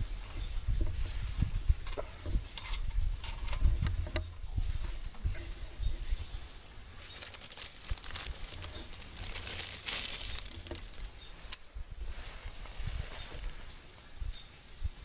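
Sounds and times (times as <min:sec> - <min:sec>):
wind rumble on microphone: 0:00.0 - 0:15.0
wood fire crackling: 0:06.5 - 0:14.0.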